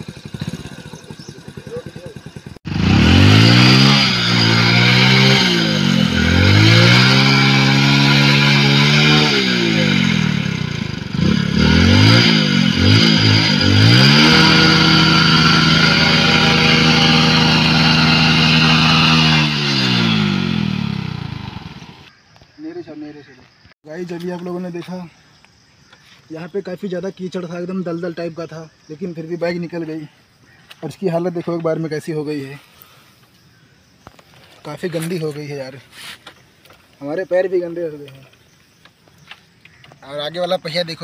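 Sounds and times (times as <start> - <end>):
motorcycle engine revving: 0.0 - 22.1.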